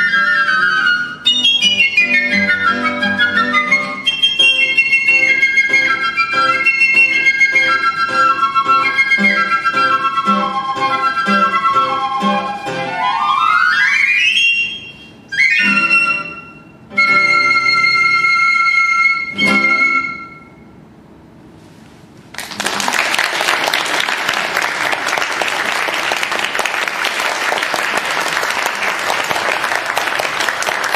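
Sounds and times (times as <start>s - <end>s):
piccolos playing: 0.0s - 20.7s
audience applause: 22.3s - 30.9s.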